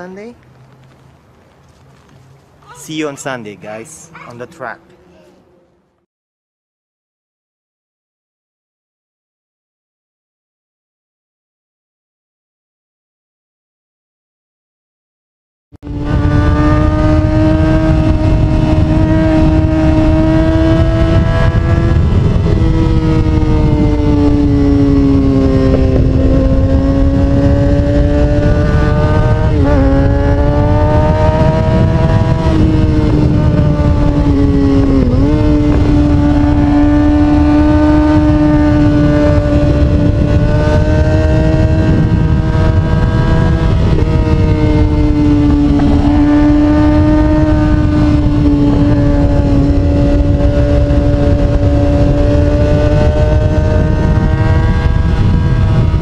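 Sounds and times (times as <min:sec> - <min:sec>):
motorcycle engine at high revs: 0:15.8 - 0:56.0
wind rumble on microphone: 0:15.8 - 0:56.0.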